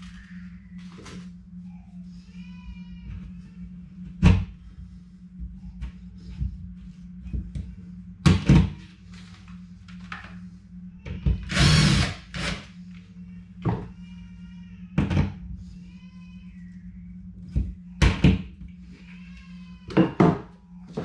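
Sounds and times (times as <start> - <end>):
faint drawn-out whine: 0.0 - 21.0
cordless drill running: 11.5 - 12.7.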